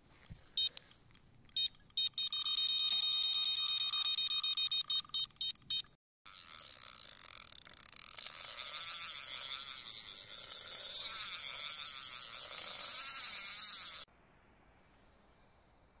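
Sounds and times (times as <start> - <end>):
fishing reel whirring: 2.1 - 5.0, 6.3 - 14.1.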